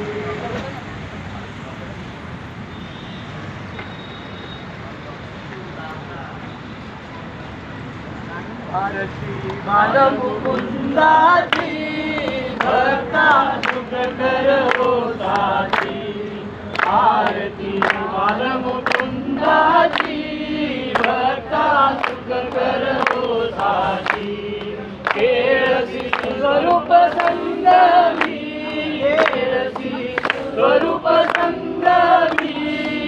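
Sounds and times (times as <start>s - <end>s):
group singing devotional song: 9.6s - 33.0s.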